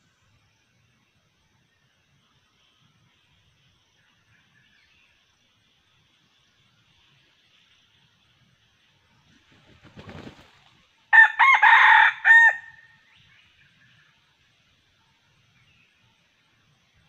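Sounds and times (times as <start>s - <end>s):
faint rustle in dry leaves: 9.3s - 11.0s
rooster crowing: 11.1s - 12.9s.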